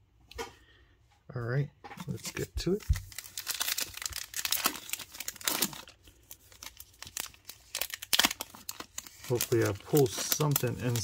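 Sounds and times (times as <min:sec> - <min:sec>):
foil wrapper crinkling: 0:02.3 - 0:11.0.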